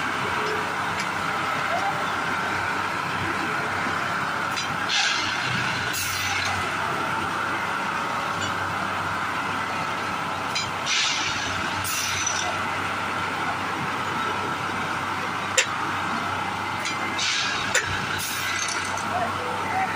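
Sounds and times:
constant whine: 0.0s - 19.9s
engine and hydraulic drone: 0.0s - 19.9s.

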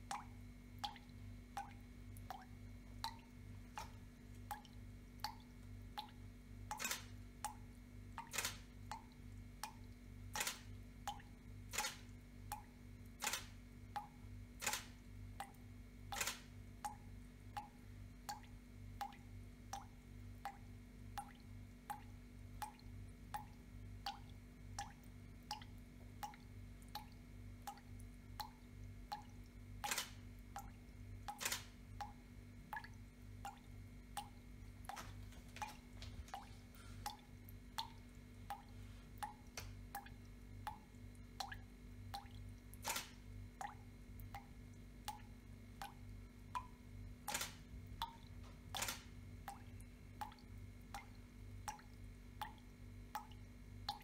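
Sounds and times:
faint low hum: 0.0s - 54.0s
tap dripping into water: 0.0s - 54.0s
camera shutter clicks: 6.8s - 7.1s, 8.3s - 8.7s, 10.4s - 10.7s, 11.7s - 12.0s, 13.2s - 13.5s, 14.6s - 15.0s, 16.1s - 16.5s, 29.8s - 30.2s, 31.4s - 31.7s, 42.8s - 43.2s, 47.3s - 47.6s, 48.8s - 49.1s.

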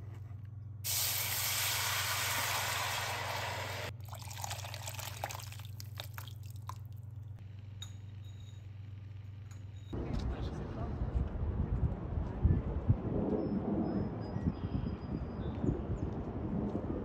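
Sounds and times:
water running in a stream: 0.9s - 6.9s
light water drips: 4.0s - 7.2s.

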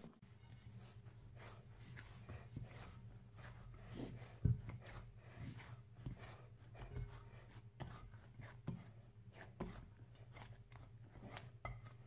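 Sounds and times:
hands kneading dough thuds: 0.2s - 12.0s.

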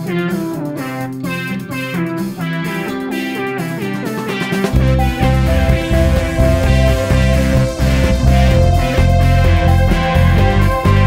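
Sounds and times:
guitar tune: 0.0s - 11.0s
deep bass beat: 4.6s - 11.0s.

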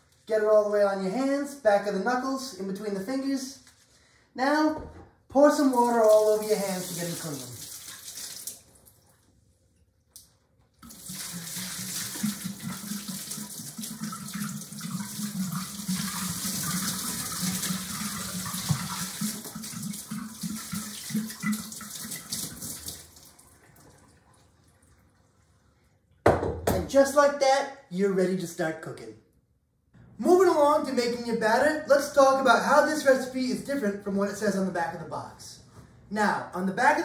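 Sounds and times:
water splashing into sink: 5.7s - 9.1s, 10.8s - 25.2s.

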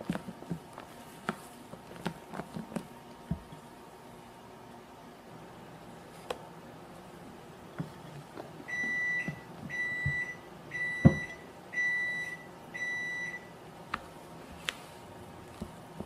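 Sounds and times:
appliance high beeps: 8.7s - 13.5s.

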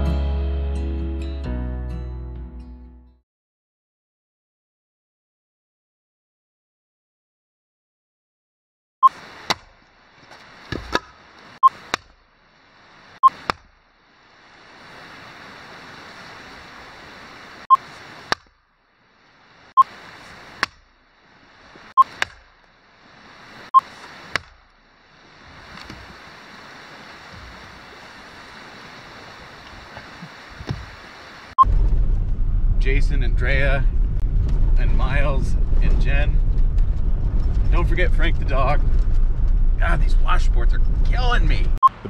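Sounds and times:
river rushing: 9.1s - 18.4s, 22.8s - 31.6s
axe splitting firewood: 9.4s - 12.2s, 22.1s - 22.6s, 24.3s - 24.6s.

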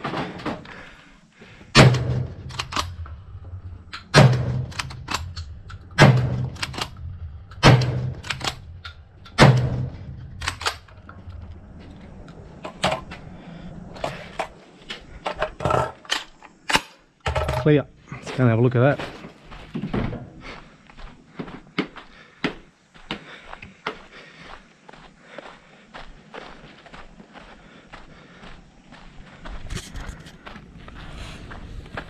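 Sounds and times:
shotgun firing: 1.7s - 3.0s, 4.0s - 7.0s, 7.6s - 8.6s, 9.3s - 10.8s
shotgun action clacking: 1.8s - 3.0s, 4.0s - 7.0s, 7.6s - 10.8s.

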